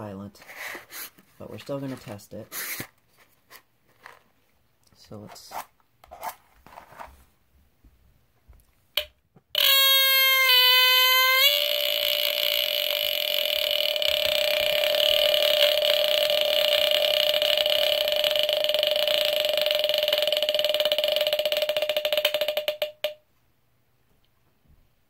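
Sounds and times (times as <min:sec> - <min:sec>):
smoke alarm raspy squeal: 0:09.6 - 0:18.8.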